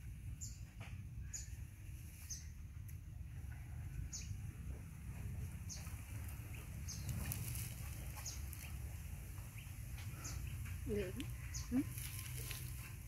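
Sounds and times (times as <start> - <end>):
low steady rumble: 0.0 - 13.0
bird chirping: 0.3 - 2.6, 4.0 - 13.0.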